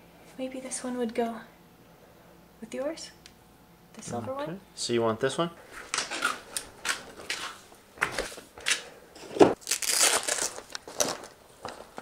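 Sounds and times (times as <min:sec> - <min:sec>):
parts box crinkling and rustling: 0:09.4 - 0:12.0.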